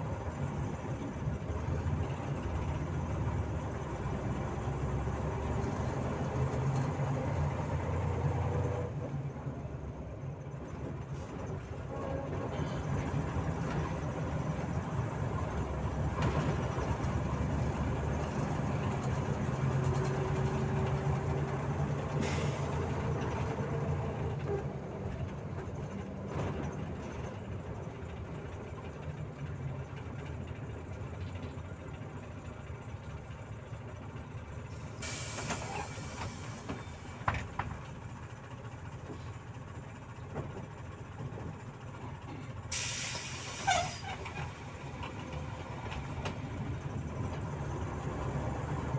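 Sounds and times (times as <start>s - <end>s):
bus engine and road drone: 0.0s - 48.9s
air hiss: 42.7s - 44.0s.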